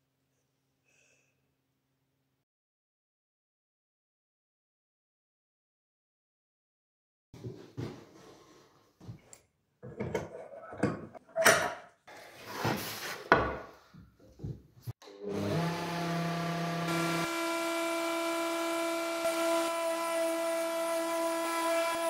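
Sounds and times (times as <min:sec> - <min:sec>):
wood router whining: 0:15.0 - 0:22.0.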